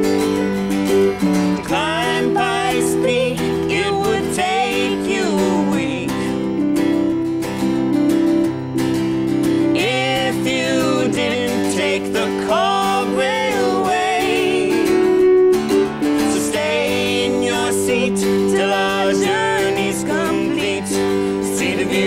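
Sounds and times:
electric keyboard: 0.0 - 22.0
strummed acoustic guitar: 0.0 - 22.0
person singing: 1.6 - 6.7, 9.6 - 22.0.

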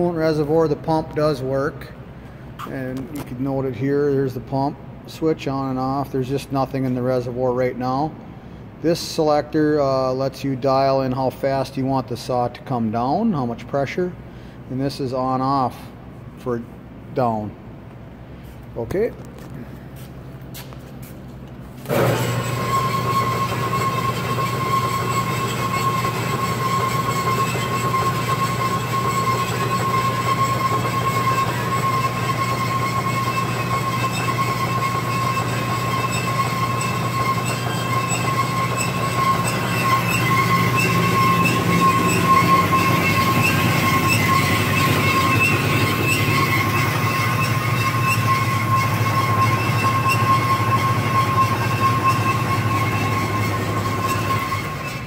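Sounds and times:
bandsaw motor humming: 21.8 - 55.0
saw blade squealing: 21.9 - 55.0.

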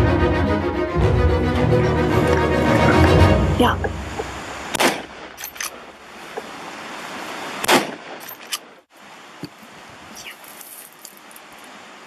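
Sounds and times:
gunshot: 4.7 - 5.3, 7.6 - 8.2.

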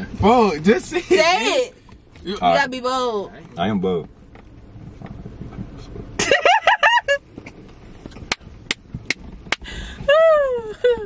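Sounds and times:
sharp claps: 8.3 - 9.6.

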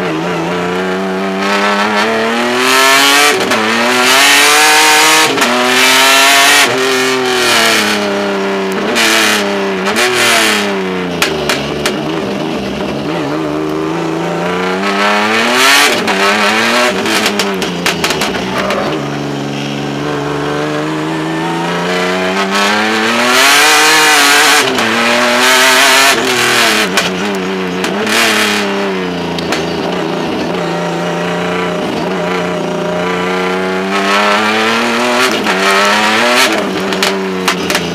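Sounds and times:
race car engine revving: 0.0 - 37.9.

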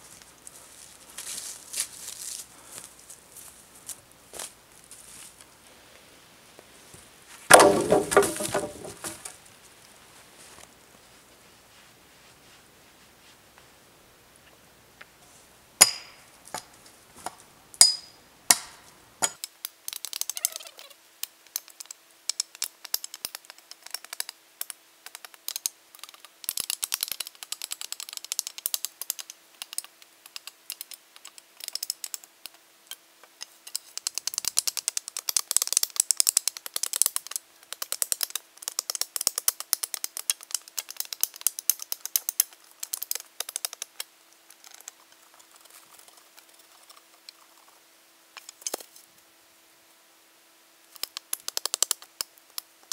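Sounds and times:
dry branches crackling: 0.0 - 5.5, 6.6 - 10.8
sharp wooden knocks: 7.5 - 9.3.

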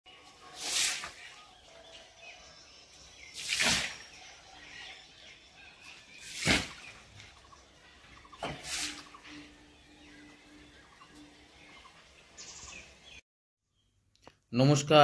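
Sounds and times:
splashing onto water: 3.3 - 4.1, 6.2 - 7.0.

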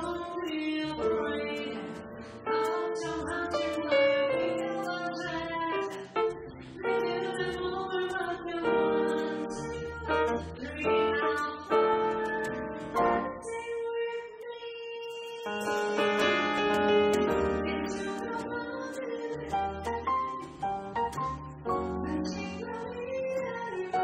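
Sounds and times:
woman singing jazz: 0.0 - 20.6, 21.7 - 24.0
small jazz band playing: 15.5 - 18.4.

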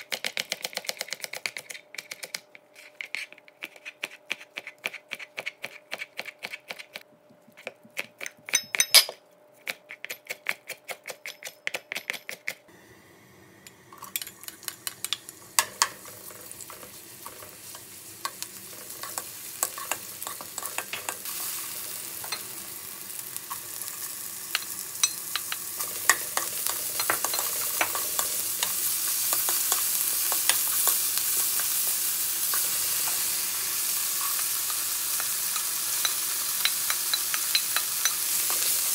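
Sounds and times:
oil sizzling in a wok: 12.8 - 38.9
spatula scraping and tapping pan: 14.0 - 21.3, 24.5 - 33.2, 34.1 - 38.8.

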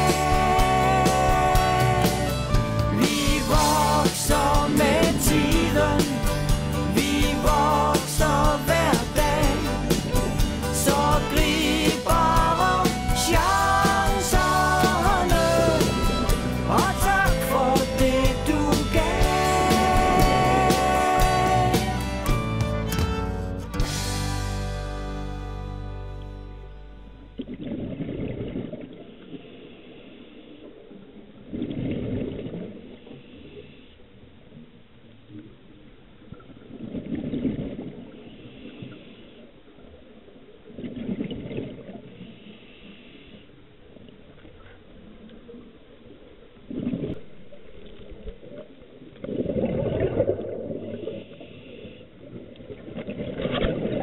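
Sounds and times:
exhaled bubbles underwater: 46.7 - 54.0.

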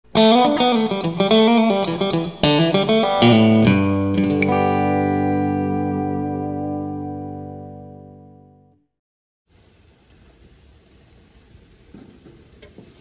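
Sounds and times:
ringing chord: 0.7 - 8.8.

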